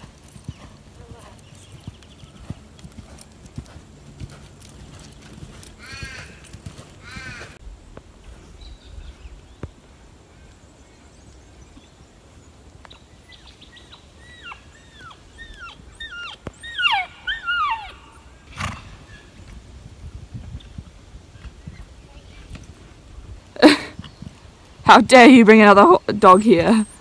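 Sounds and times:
animal squeaky calls: 14.2 - 18.2.

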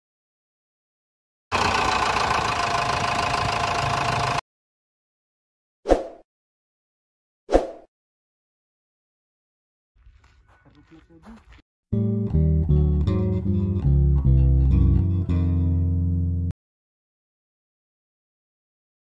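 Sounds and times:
machine engine running: 1.5 - 4.4.

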